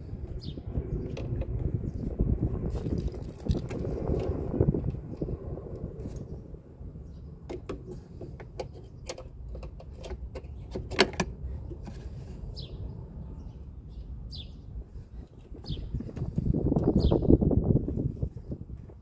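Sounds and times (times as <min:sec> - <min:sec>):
bird chirping: 0:12.5 - 0:14.8, 0:15.6 - 0:16.1, 0:16.8 - 0:17.4.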